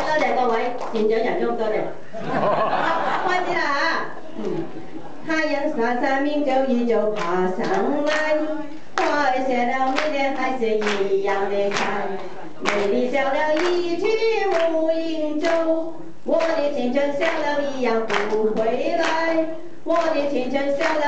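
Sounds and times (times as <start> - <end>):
people clapping along: 0.0 - 1.2, 7.1 - 21.0
woman singing into microphone: 5.2 - 21.0.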